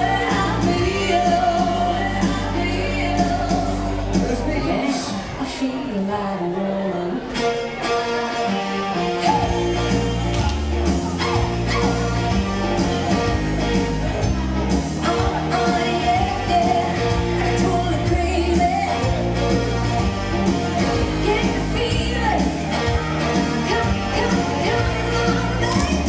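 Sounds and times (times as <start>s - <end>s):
person singing: 0.0s - 8.1s, 15.0s - 19.8s, 20.5s - 26.0s
stepping bass line: 9.2s - 26.0s.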